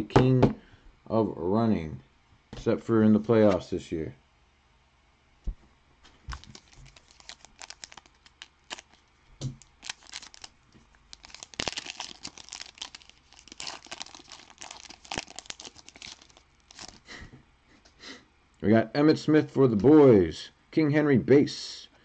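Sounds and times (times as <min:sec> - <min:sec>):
card pack wrapper tearing and crackling: 0:06.3 - 0:17.0.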